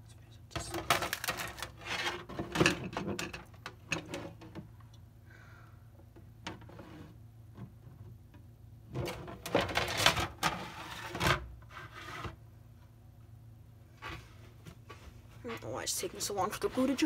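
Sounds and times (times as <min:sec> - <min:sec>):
plastic plates scraping on table: 0:09.0 - 0:12.4.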